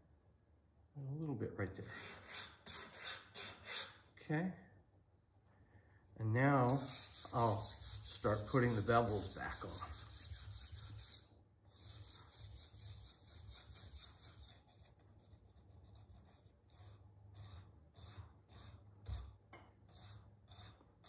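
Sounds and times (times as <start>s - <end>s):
knife scraping on sharpening stone: 1.8s - 4.0s.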